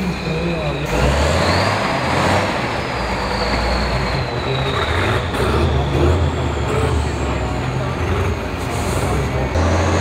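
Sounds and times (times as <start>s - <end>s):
diesel truck engine under load: 0.0s - 10.0s.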